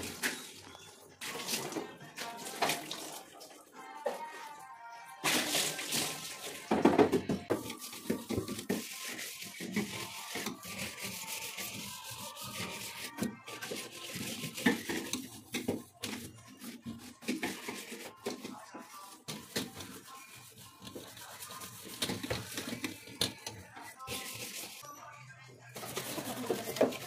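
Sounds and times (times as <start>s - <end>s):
cloth rubbing wet plastic: 25.8s - 27.0s.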